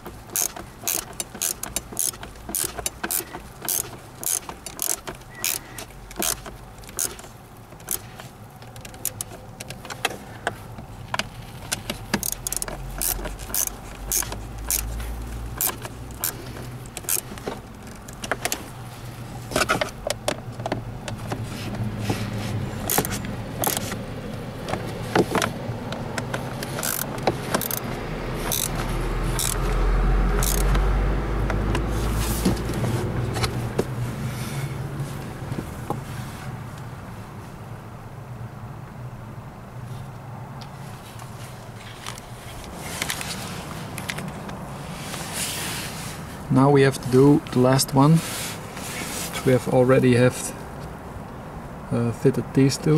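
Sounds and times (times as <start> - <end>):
metallic clicks of tools: 0.3 - 8.0, 8.6 - 10.1, 11.2 - 15.0, 15.6 - 18.6, 22.8 - 24.0, 26.3 - 27.9, 28.5 - 29.7, 30.4 - 30.8.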